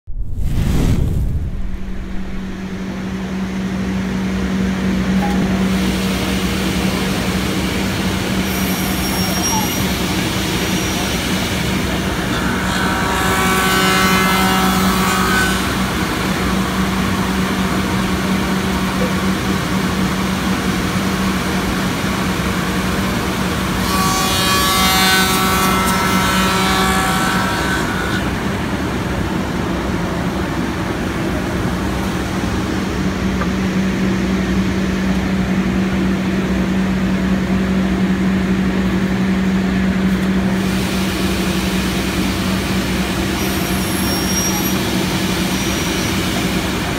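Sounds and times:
machine humming: 0:00.1 - 0:08.9, 0:09.8 - 0:29.0
tools cutting wood with whine: 0:10.9 - 0:18.0, 0:22.9 - 0:28.5.

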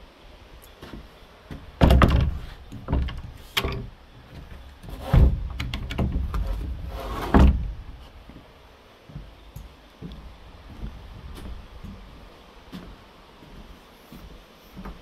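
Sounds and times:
heavy thuds and knocks: 0:01.5 - 0:08.0.

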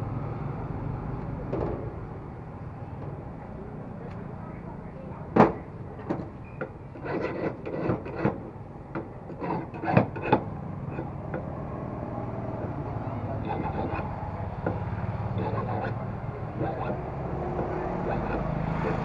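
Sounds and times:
hand file scraping metal: 0:06.9 - 0:08.4, 0:09.3 - 0:11.5, 0:12.6 - 0:19.0.

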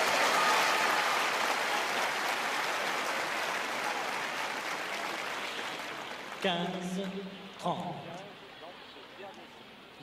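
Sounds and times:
crowd applauding: 0:00.0 - 0:07.2.

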